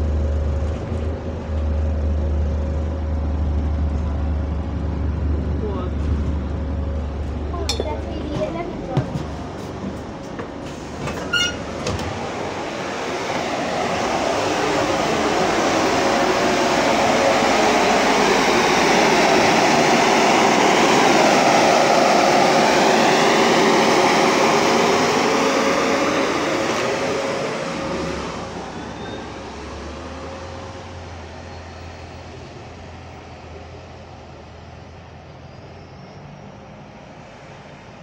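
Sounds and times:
electric cooling fan whirring: 11.7 - 28.4.

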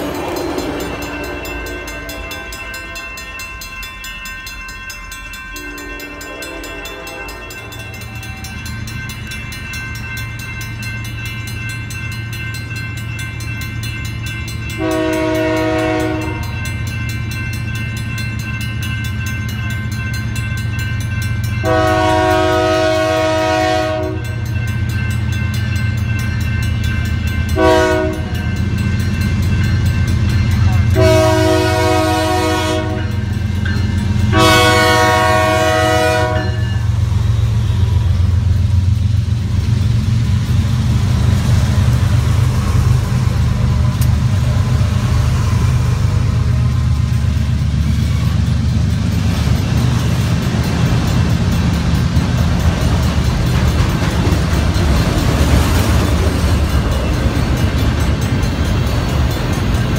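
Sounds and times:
freight cars rolling past: 0.0 - 3.9
train air horn: 5.6 - 8.5, 14.8 - 16.6, 21.6 - 24.4, 27.6 - 28.4, 30.7 - 33.2, 34.3 - 38.2.

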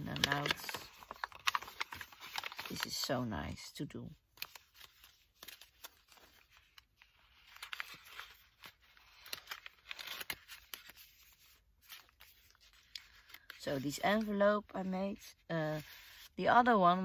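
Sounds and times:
paper rustling and clicking: 0.0 - 3.1, 4.3 - 14.4.

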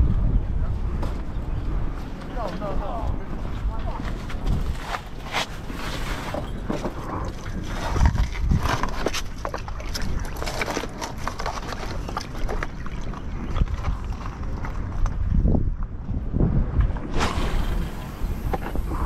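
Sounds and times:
steady low rumble: 13.1 - 19.0.

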